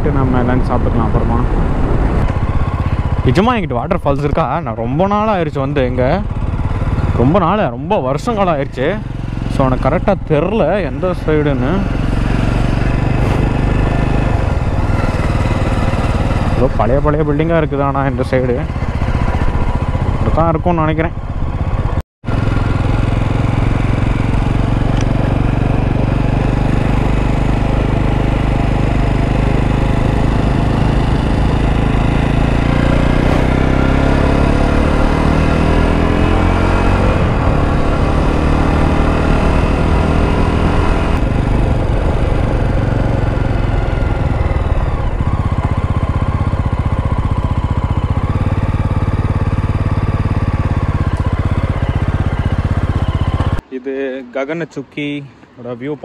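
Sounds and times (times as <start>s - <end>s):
wind noise: 0.0s - 5.2s
motorcycle engine running: 0.0s - 53.7s.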